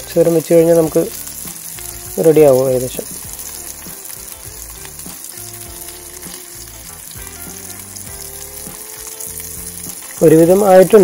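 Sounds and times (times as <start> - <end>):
fish sizzling in a pan: 0.0 - 11.0.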